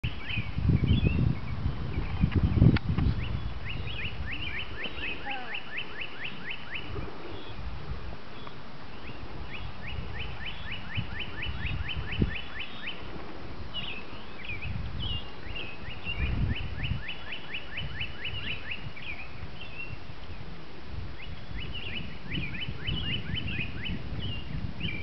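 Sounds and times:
songbird whistling downslurred notes: 9.0s - 13.0s.

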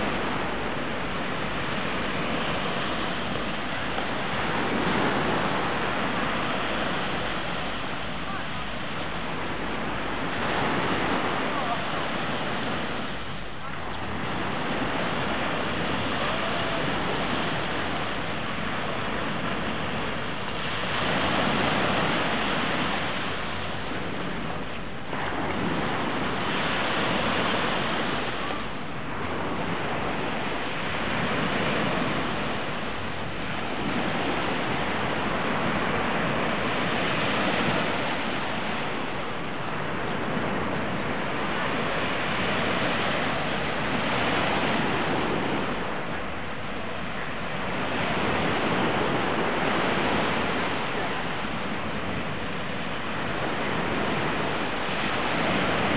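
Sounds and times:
small waves breaking on beach: 0.0s - 55.9s.

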